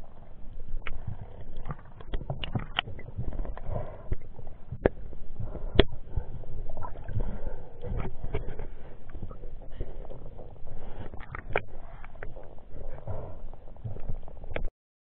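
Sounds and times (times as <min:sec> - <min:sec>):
muffled underwater rumbling: 0:00.0 - 0:14.7
sharp underwater clicks: 0:00.8 - 0:07.2, 0:13.9 - 0:14.7.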